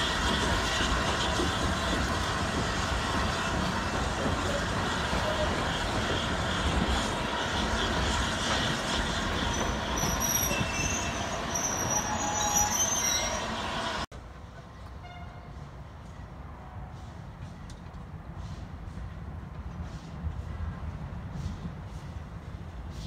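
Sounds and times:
train wheels rumbling on rails: 0:00.0 - 0:23.0
wheels squealing: 0:03.0 - 0:14.0.

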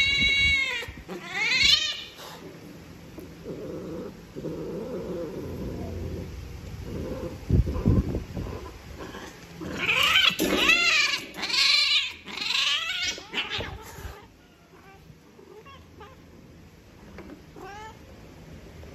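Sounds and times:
cat yowling: 0:00.0 - 0:02.4, 0:09.7 - 0:16.2.

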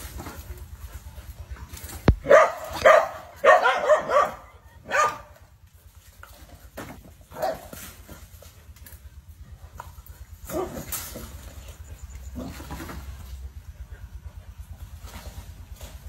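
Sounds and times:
dogs barking: 0:00.6 - 0:05.6, 0:06.8 - 0:08.3, 0:09.6 - 0:15.0.

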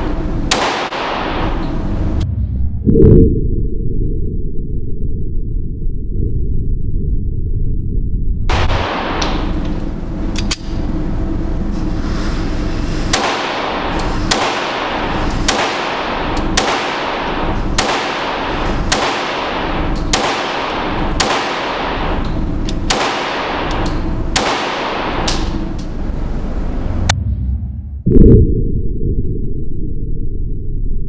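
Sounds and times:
steady dense background noise: 0:00.0 - 0:02.4, 0:08.5 - 0:27.6
pistol shots: 0:00.5 - 0:01.6, 0:13.1 - 0:25.6.

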